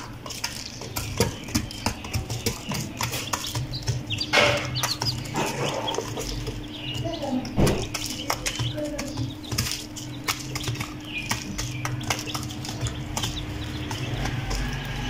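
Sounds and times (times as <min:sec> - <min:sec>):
chick peeps: 0:00.0 - 0:15.0
chickens pecking grain on cardboard: 0:00.0 - 0:15.0.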